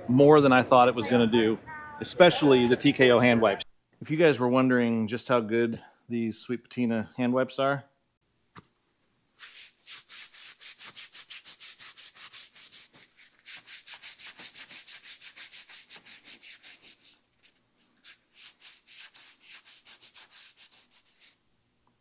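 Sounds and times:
hand wipe scrubbing skin: 9.3 - 21.4.

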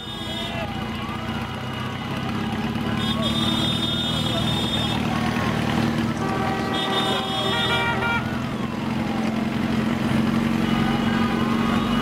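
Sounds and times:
horn sounding: 0.0 - 5.2, 6.0 - 8.4
motorcycle engines running: 0.0 - 12.0.

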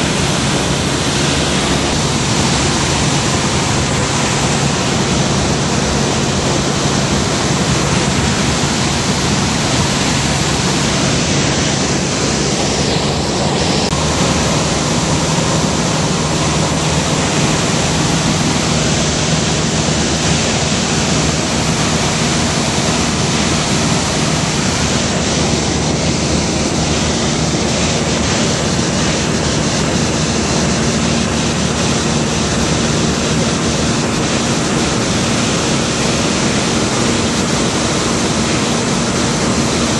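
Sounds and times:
propeller engine drone: 0.0 - 39.9.

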